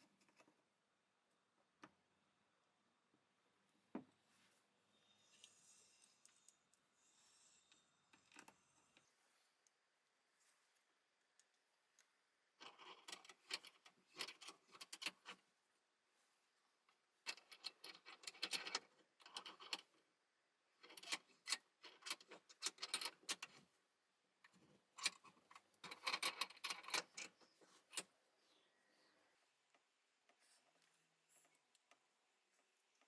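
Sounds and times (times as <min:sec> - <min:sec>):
small metallic clicks and rattles: 0:08.1 - 0:08.6, 0:11.4 - 0:15.4, 0:17.2 - 0:20.0, 0:20.8 - 0:23.7, 0:24.4 - 0:28.1.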